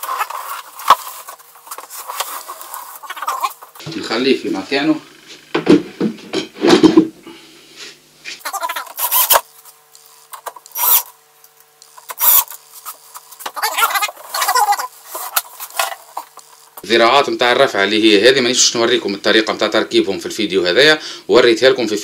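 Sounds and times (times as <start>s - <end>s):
cordless drill-driver: 9.0s - 9.4s, 10.6s - 11.1s, 12.1s - 12.5s.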